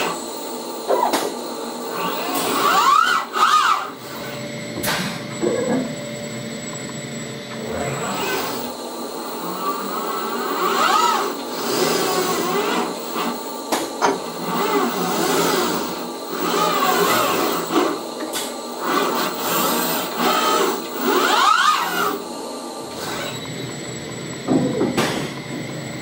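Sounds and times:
mechanical hum: 0.0s - 26.0s
robot arm servos whining: 1.9s - 4.4s, 7.5s - 13.4s, 14.2s - 18.0s, 18.8s - 22.2s, 22.9s - 26.0s.

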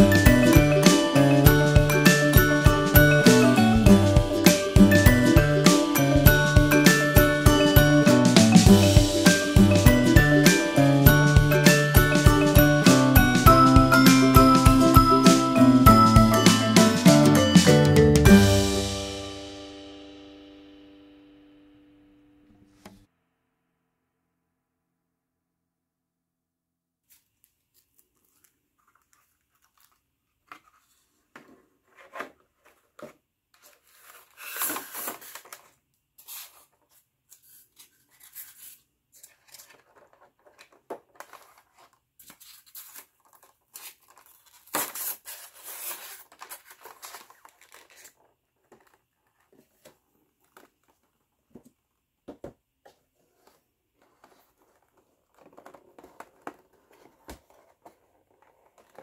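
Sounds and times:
plastic box crinkling and scraping: 27.7s - 51.7s, 52.9s - 59.0s.

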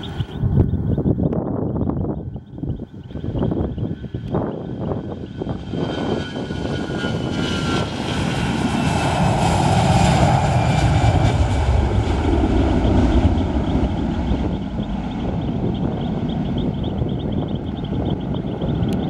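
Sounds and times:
aircraft engines passing: 0.0s - 19.0s.

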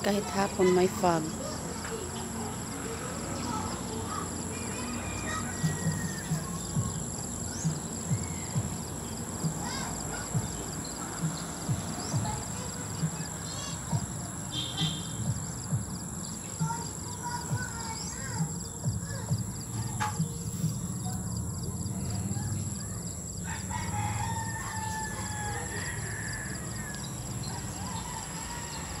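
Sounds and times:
high-pitched insect drone: 0.0s - 29.0s
bird chirps: 3.4s - 23.4s.

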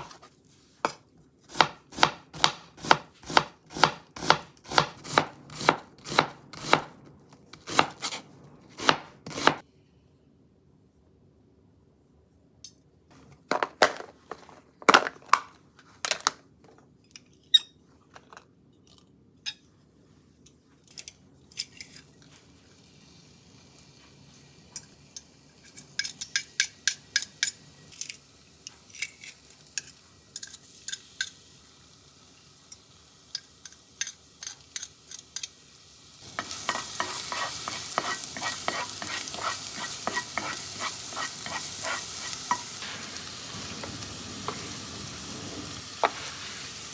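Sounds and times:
garlic sizzling in hot oil: 22.7s - 46.9s
garlic scraped into pot: 36.4s - 42.8s
spatula scraping pot: 36.6s - 42.6s.

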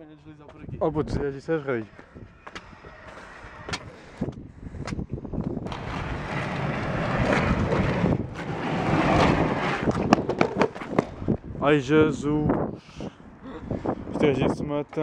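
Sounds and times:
longboard wheels rumbling on tiles: 5.5s - 11.4s.

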